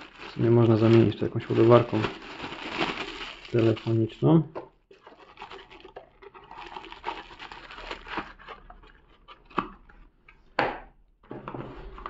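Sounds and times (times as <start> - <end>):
plastic bag crinkling: 0.0 - 9.0.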